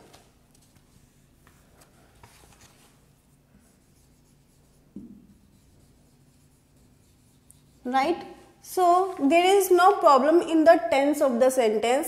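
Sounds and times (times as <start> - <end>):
marker scratching on whiteboard: 3.6 - 8.4.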